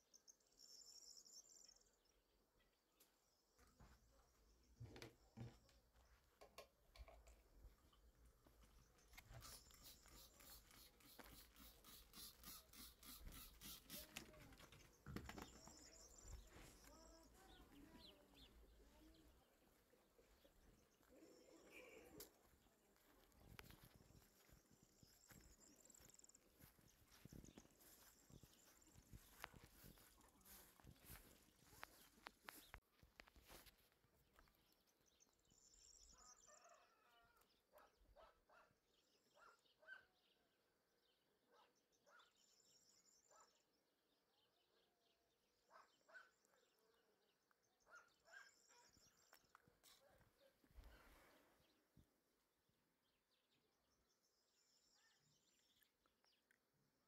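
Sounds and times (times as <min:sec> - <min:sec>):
spray bottle spritzing: 0:09.4 - 0:14.5.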